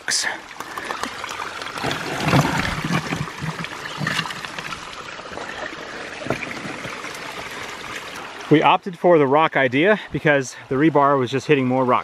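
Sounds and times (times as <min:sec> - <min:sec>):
creek trickling over rocks: 0:00.0 - 0:12.0
low thumps in water: 0:01.8 - 0:04.8.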